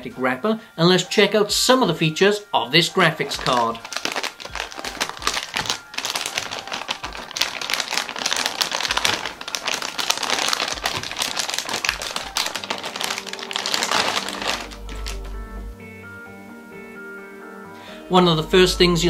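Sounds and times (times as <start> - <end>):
anti-static bag crinkling: 2.9 - 15.5.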